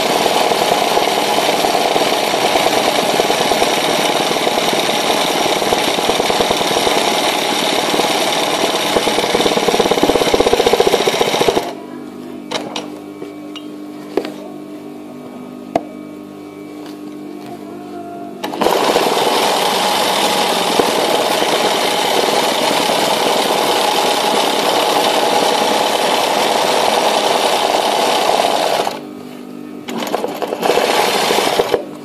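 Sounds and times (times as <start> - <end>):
sewing machine needle rattling: 0.4 - 11.7.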